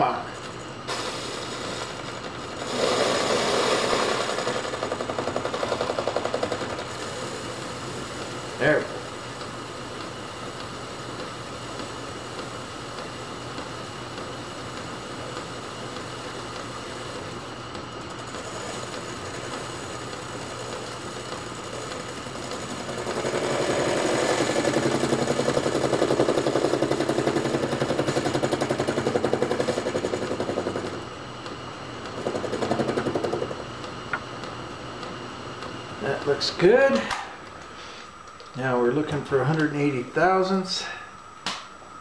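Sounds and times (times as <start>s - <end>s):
metal lathe running: 0.5s - 35.2s
lathe tool cutting workpiece: 0.9s - 7.5s, 18.2s - 31.0s.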